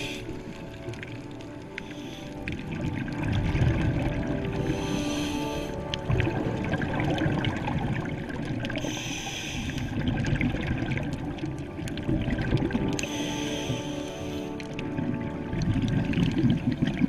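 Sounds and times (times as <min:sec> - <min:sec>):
exhaled air bubbling underwater: 0:00.0 - 0:17.0
regulator inhalation hiss: 0:04.7 - 0:05.8, 0:08.8 - 0:10.0, 0:13.0 - 0:14.6.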